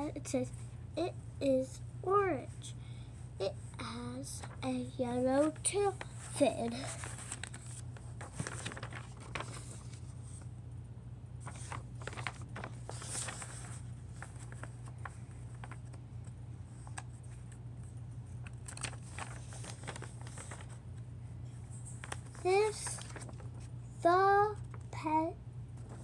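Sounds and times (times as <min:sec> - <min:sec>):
ceiling fan hum: 0:00.0 - 0:26.0
faint clicks and rustles: 0:05.2 - 0:10.5, 0:11.4 - 0:20.8, 0:21.7 - 0:23.7.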